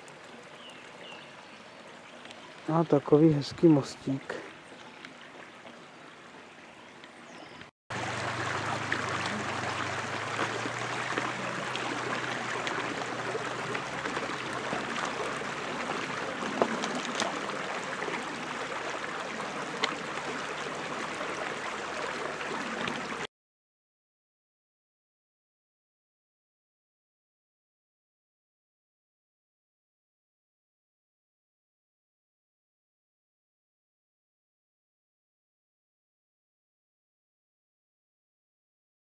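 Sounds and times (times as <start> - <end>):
brook babbling over stones: 0.0 - 23.3.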